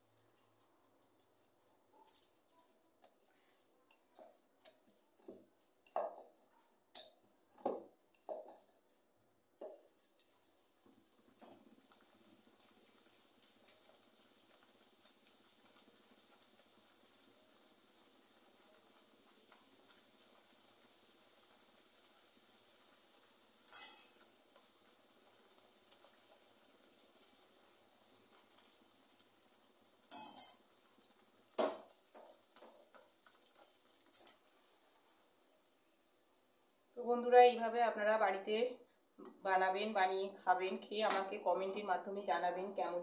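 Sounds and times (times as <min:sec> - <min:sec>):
deep-frying sizzle: 0:03.0 - 0:43.0
metal spoon clinking on pan: 0:23.6 - 0:24.3, 0:30.1 - 0:30.7, 0:34.0 - 0:34.5.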